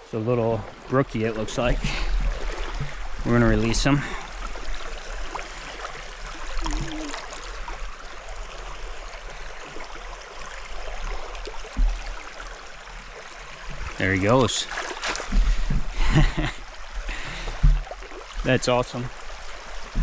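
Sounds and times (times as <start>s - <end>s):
river water flowing: 0.0s - 20.0s
hands splashing in water: 6.4s - 7.6s, 14.6s - 15.6s
low thump: 11.8s - 12.1s, 17.6s - 17.9s.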